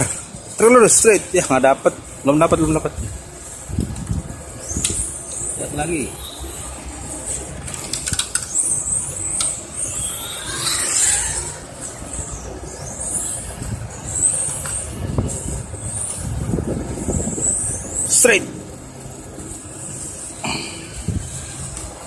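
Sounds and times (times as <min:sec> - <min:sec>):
rc car motor whine: 0:04.6 - 0:17.8.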